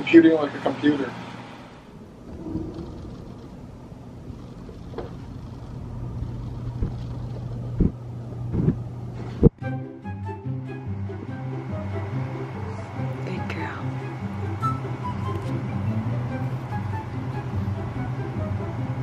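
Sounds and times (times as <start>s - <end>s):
low hum and rumble: 1.5s - 9.6s.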